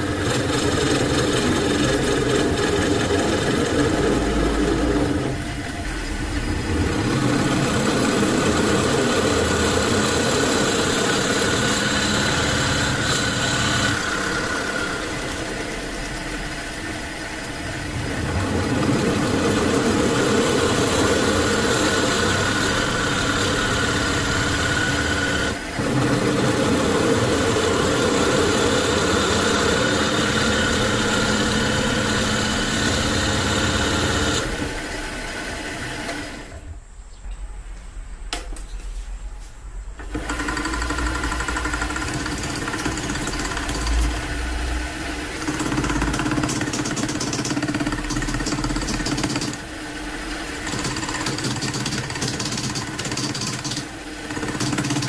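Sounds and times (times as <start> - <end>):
metal lathe cutting wood: 0.0 - 36.6, 40.0 - 55.0.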